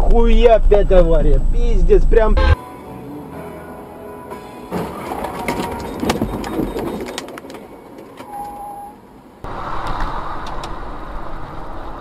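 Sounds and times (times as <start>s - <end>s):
vehicles crashing: 4.3s - 8.2s.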